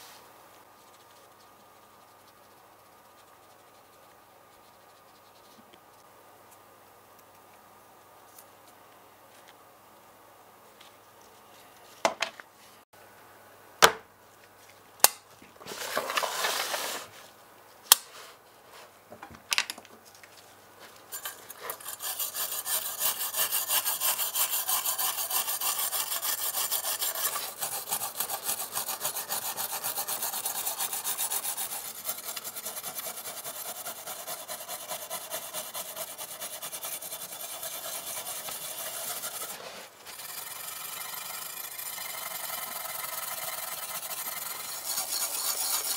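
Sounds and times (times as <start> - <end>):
short rustling scrape: 15.6 - 17.4, 38.4 - 40.2
wire brush scratching metal: 21.1 - 45.9.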